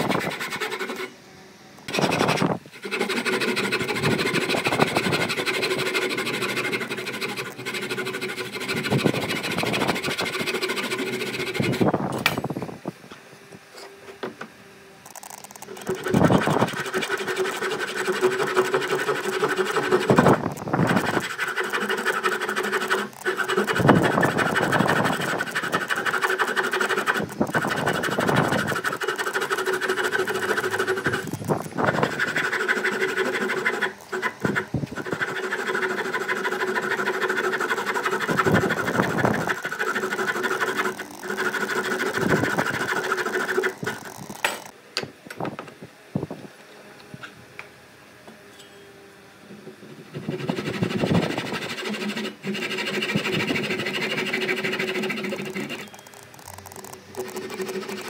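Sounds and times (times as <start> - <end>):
power tool motor whining: 15.1 - 44.7, 50.3 - 58.0.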